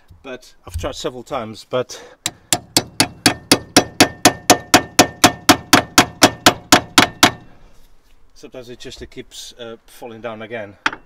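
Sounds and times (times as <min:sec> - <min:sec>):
hammer clanging on steel: 0:02.3 - 0:07.5, 0:10.8 - 0:11.0.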